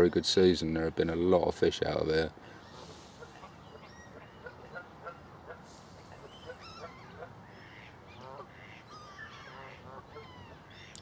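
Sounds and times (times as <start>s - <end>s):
scattered bird calls: 2.3s - 11.0s
waterfowl honking: 2.6s - 11.0s.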